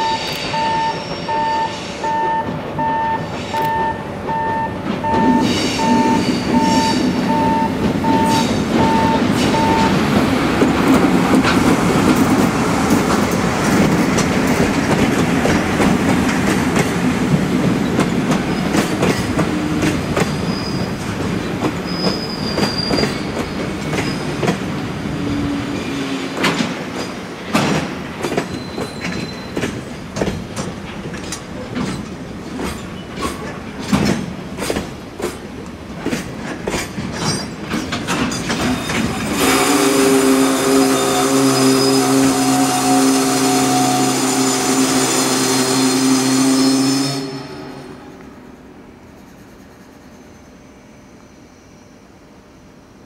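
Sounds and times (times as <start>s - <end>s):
beeping warning tone: 0.0s - 10.0s
train wheels rumbling: 0.0s - 50.7s
high wheel squeals: 5.0s - 10.0s, 20.2s - 21.0s, 21.8s - 24.3s, 28.5s - 29.6s, 38.7s - 47.8s
wheels clicking over rail joints: 26.4s - 39.3s.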